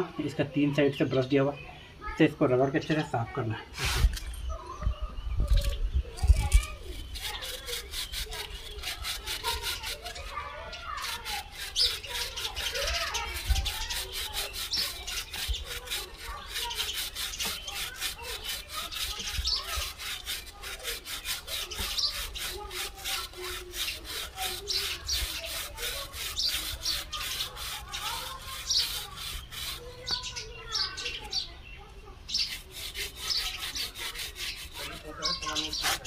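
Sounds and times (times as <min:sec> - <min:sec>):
brush scrubbing a chain: 0:06.2 - 0:31.4, 0:32.3 - 0:36.0.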